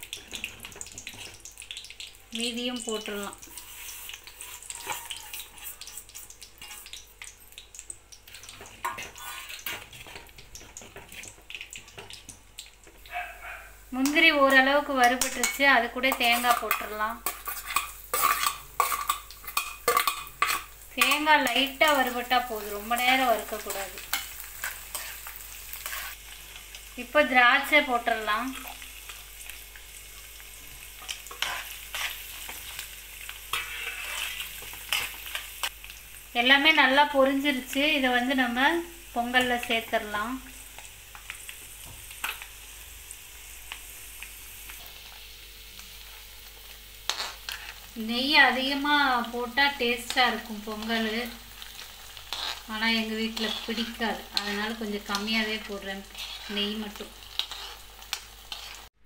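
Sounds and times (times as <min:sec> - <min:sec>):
nuts sizzling in fat: 0:00.0 - 0:59.0
metal spatula scraping pan: 0:03.5 - 0:07.0, 0:08.6 - 0:11.3, 0:15.1 - 0:22.2, 0:23.2 - 0:26.2, 0:31.2 - 0:32.8, 0:33.5 - 0:35.2, 0:56.0 - 0:56.8, 0:58.5 - 0:58.9.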